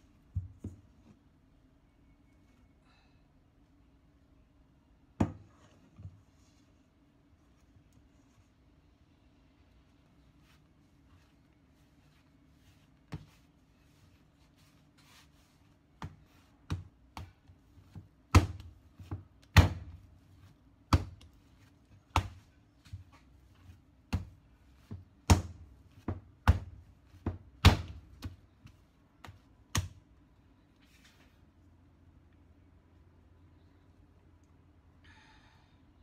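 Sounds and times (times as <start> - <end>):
dough thumping on plastic board: 16.0 - 20.2, 20.8 - 21.4, 22.0 - 23.2, 24.0 - 30.0.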